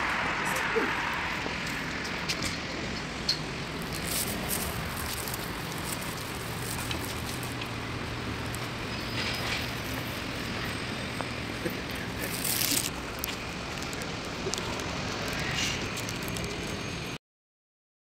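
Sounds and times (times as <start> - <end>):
street traffic rumble: 0.0 - 17.2.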